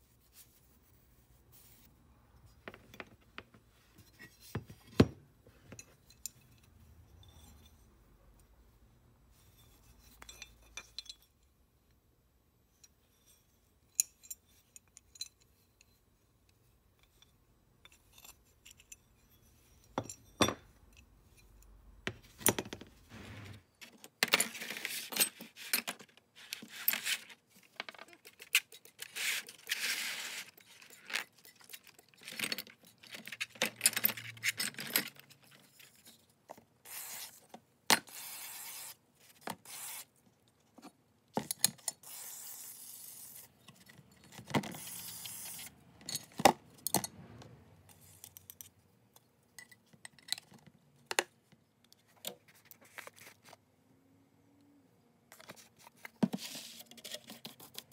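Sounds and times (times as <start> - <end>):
metal parts clinking and tapping: 9.6 - 11.5, 12.8 - 16.0, 17.0 - 22.9, 30.4 - 36.2, 43.6 - 47.1, 47.9 - 51.2.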